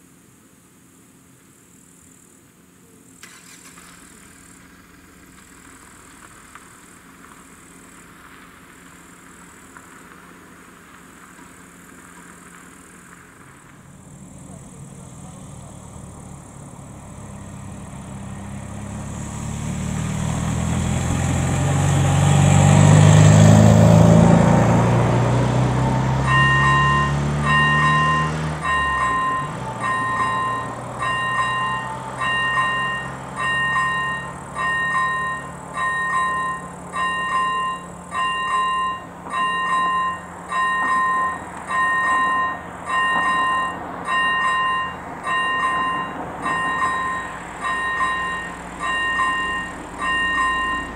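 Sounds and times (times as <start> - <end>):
vehicle passing by: 13.8 - 50.9
level crossing warning bell: 26.2 - 50.9.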